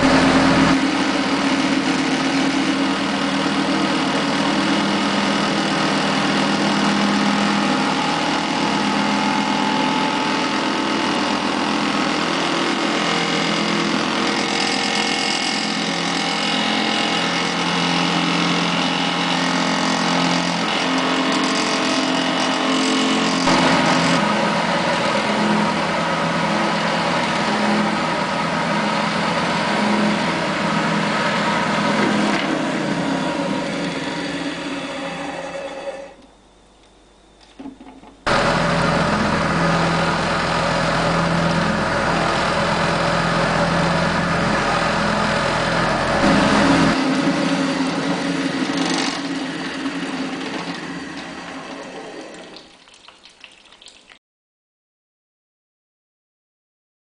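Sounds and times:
spin dryer motor and drum hum: 0.0s - 36.6s, 37.6s - 52.9s
water draining into a tray: 52.2s - 54.2s.

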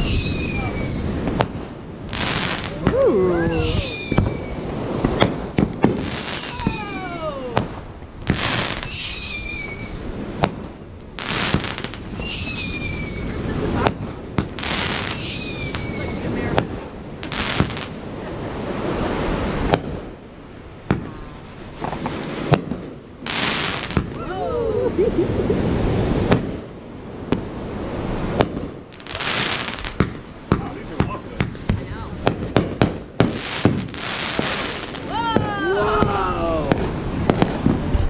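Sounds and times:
falling firework whistles: 0.0s - 1.5s, 2.1s - 7.7s, 8.3s - 10.6s, 11.2s - 16.7s
firework shells bursting: 0.0s - 18.0s, 28.2s - 35.5s
firework crackling: 0.0s - 38.0s.

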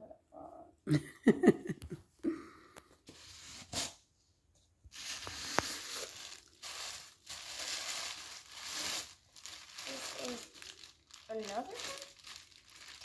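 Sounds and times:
tissue paper rustling and crinkling: 4.9s - 13.0s.

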